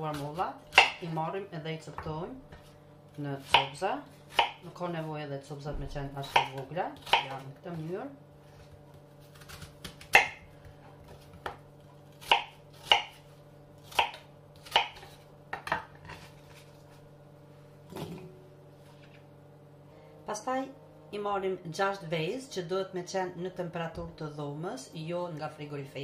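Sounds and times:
knife chopping on wooden board: 0.1 - 1.0, 3.4 - 4.7, 5.8 - 7.4, 9.3 - 10.5, 11.1 - 13.2, 13.8 - 16.3.

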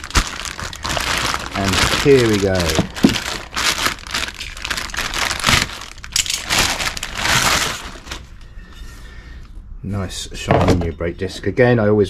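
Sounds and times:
plastic bag crinkling: 0.0 - 8.4.

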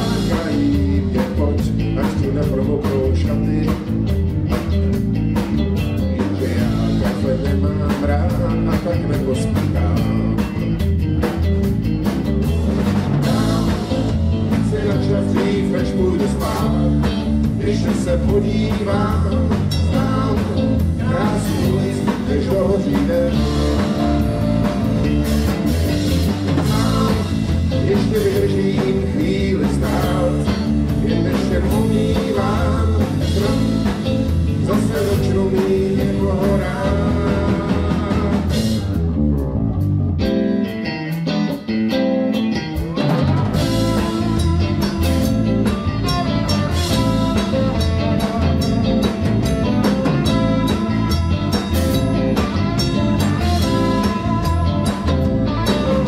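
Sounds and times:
man singing: 0.0 - 4.2, 6.2 - 10.7, 13.2 - 24.7, 26.5 - 39.0, 43.6 - 56.0
blues-rock band playing: 0.0 - 56.0.

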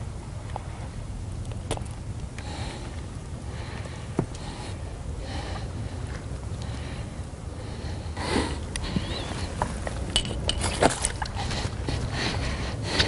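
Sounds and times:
water splashing and sloshing: 8.9 - 13.0
handling clicks and knocks: 9.6 - 12.1.

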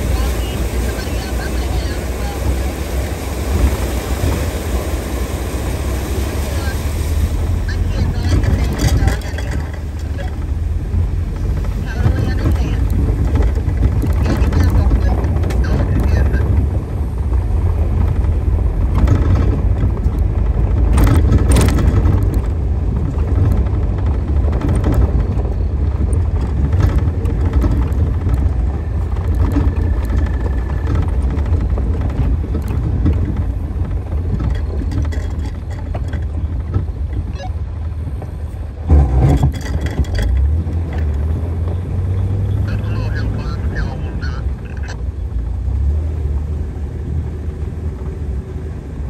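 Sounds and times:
engine and drivetrain rumble: 0.0 - 49.0
tyre and road noise: 0.0 - 49.0
small rattles: 7.8 - 38.6, 39.2 - 42.3
knocks from bumps: 17.8 - 37.5.

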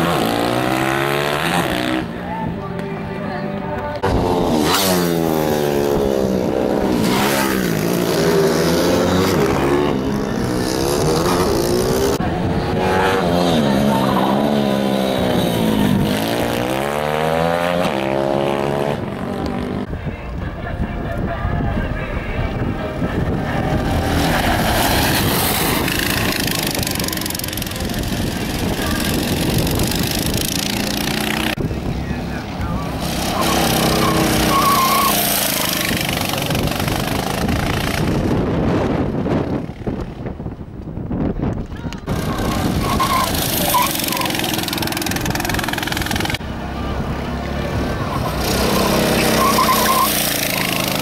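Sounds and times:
motorbike engine passing: 22.0 - 40.0, 42.1 - 51.0.

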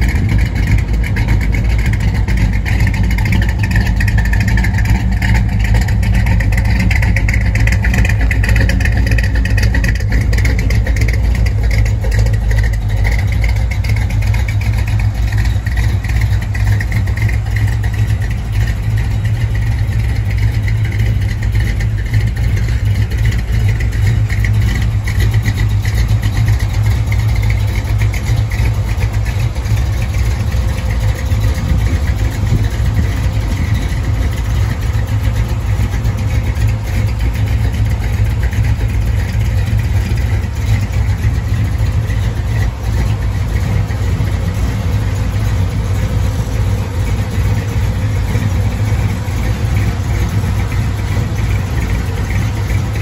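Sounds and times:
car engine idling: 0.0 - 53.0.

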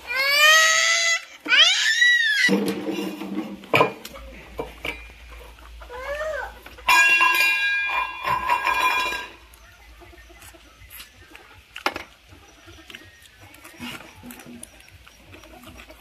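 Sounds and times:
drawn-out animal call: 5.2 - 16.0
faint clinks: 6.8 - 9.6.

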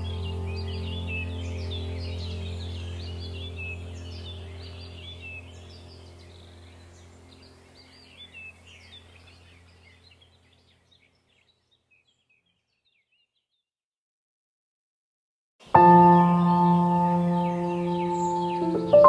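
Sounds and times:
ambient music drone: 0.0 - 10.2, 15.7 - 19.0
songbirds chirping: 0.0 - 13.7, 15.6 - 19.0.

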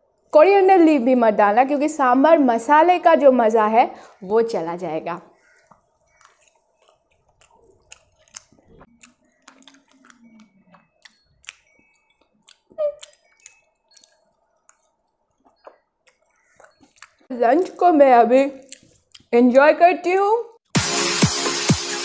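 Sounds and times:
chewing and mouth sounds: 5.5 - 17.3, 18.6 - 19.3.

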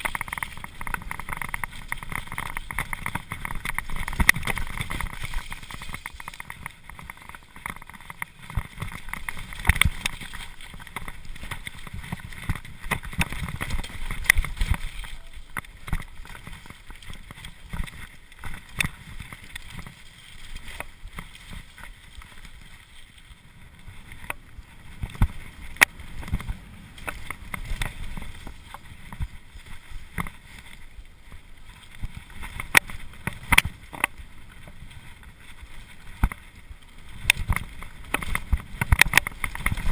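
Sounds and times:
bike rattling over stones: 0.0 - 39.9
bike tyres rumbling on gravel: 0.0 - 39.9
wind on microphone: 31.9 - 39.9.

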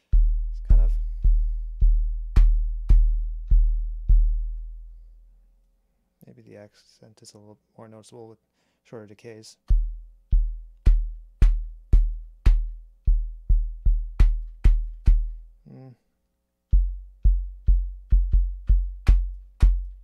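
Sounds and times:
electronic kick drum thumps: 0.0 - 4.8, 9.6 - 15.4, 16.7 - 20.0.

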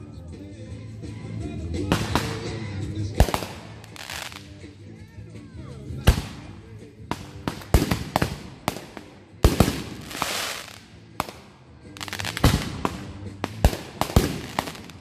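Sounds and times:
fireworks bangs: 3.2 - 4.4, 7.1 - 11.4, 12.0 - 15.0
fireworks crackling hiss: 3.2 - 4.6, 7.1 - 11.3, 12.0 - 15.0.

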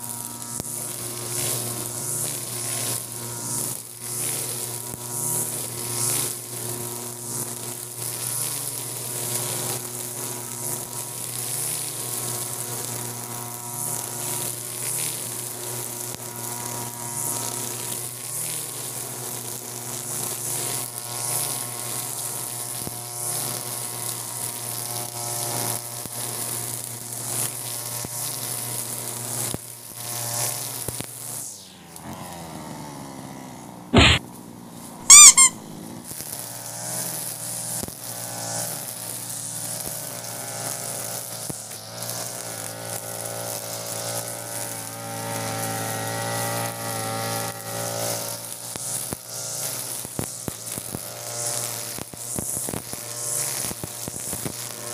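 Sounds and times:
brush cutter cutting grass: 0.0 - 54.9
loud sharp sounds: 34.0 - 34.2, 35.1 - 35.7.

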